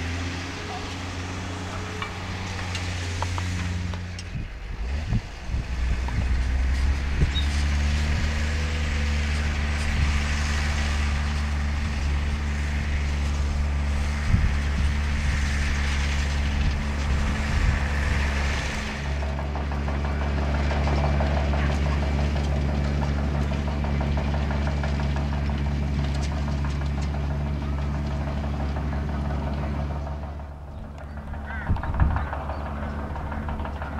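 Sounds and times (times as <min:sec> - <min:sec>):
tractor diesel engine under load: 0:00.0 - 0:33.9.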